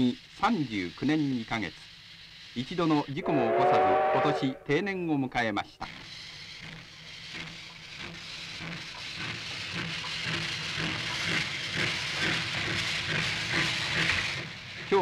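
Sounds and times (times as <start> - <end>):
steam exhaust chuffs: 0.0 - 5.0, 5.8 - 15.0
steam locomotive hissing steam: 0.0 - 15.0.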